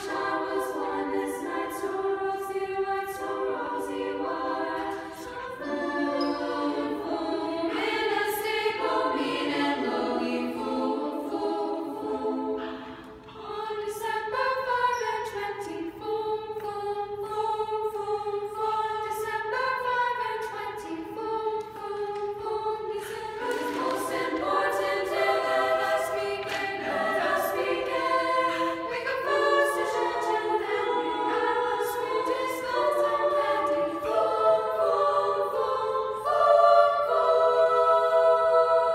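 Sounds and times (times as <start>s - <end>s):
girls choir singing a cappella: 0.0s - 38.9s.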